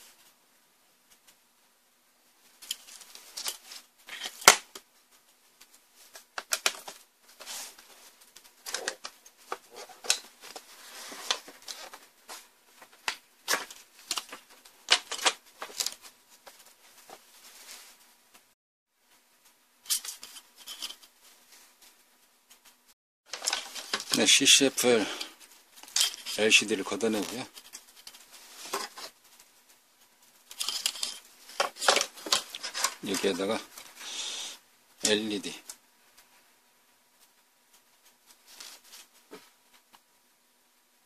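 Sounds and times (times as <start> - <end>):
plastic and metal parts clicking: 6.4 - 7.0.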